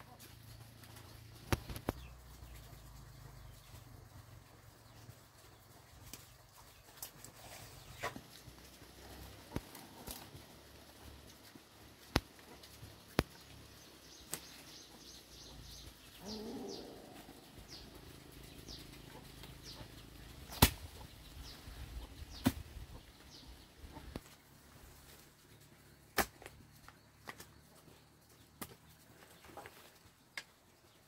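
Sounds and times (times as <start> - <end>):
bird chirping: 1.0 - 10.4, 12.4 - 24.4
knocks and snaps of sticks: 12.0 - 13.5, 14.3 - 14.6, 20.5 - 21.0, 22.4 - 22.6, 26.2 - 26.6.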